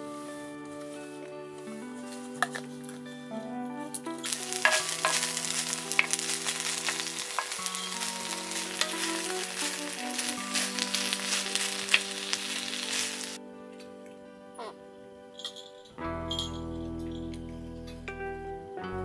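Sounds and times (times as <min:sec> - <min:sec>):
soft background music: 0:00.0 - 0:19.0
food sizzling on a griddle: 0:04.2 - 0:13.4.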